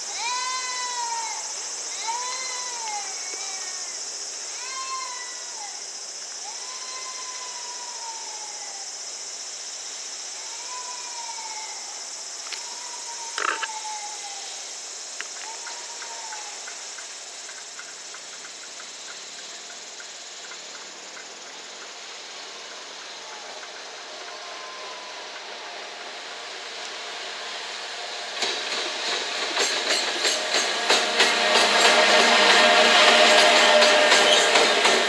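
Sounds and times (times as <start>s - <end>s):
high-pitched insect drone: 0.0s - 35.0s
animal calling: 12.5s - 14.2s.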